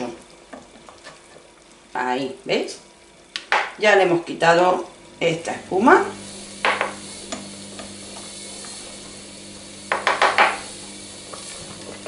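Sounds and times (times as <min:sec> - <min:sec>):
washing machine hum: 0:03.9 - 0:12.0.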